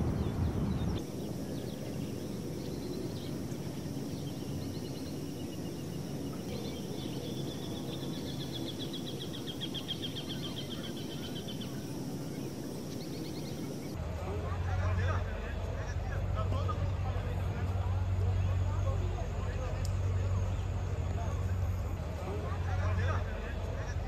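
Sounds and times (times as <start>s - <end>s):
outdoor background noise: 0.0s - 24.0s
small bird singing trills: 0.2s - 14.0s.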